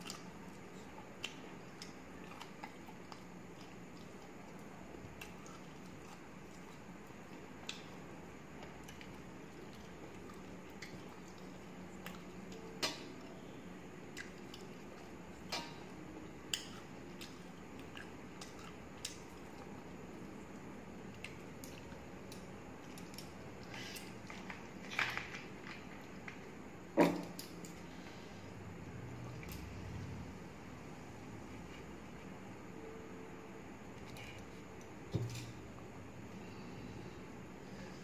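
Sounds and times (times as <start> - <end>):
chewing: 0.0 - 7.9
steady background hiss: 0.0 - 38.0.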